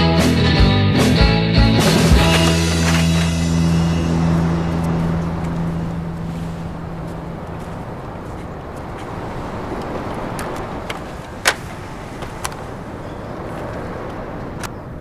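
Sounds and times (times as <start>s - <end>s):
car engine rumbling: 1.6s - 13.0s.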